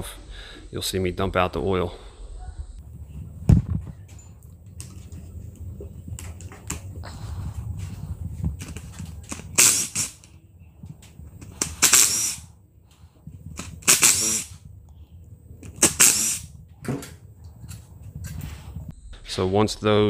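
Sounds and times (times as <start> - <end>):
impact driver rattling: 8.6 - 10.3, 11.4 - 12.4, 13.6 - 14.6, 15.6 - 17.1.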